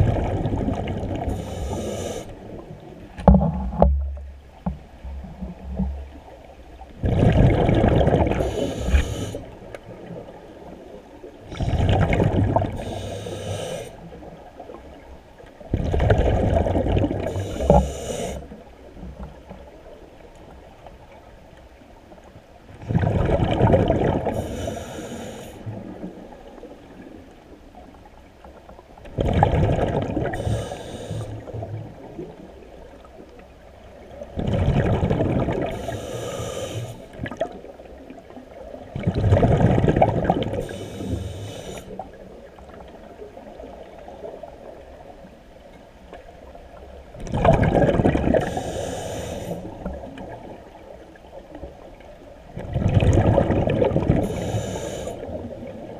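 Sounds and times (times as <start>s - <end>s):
low water wash: 0.0s - 55.9s
regulator hiss: 1.3s - 2.4s, 8.4s - 9.5s, 12.8s - 14.0s, 17.3s - 18.5s, 24.4s - 25.7s, 30.4s - 31.4s, 35.8s - 37.1s, 40.6s - 42.0s, 48.4s - 49.7s, 54.2s - 55.3s
diver exhaling bubbles: 7.0s - 9.4s, 11.5s - 14.0s, 22.9s - 25.4s, 29.2s - 31.6s, 39.0s - 41.7s, 47.2s - 50.0s, 52.6s - 55.6s.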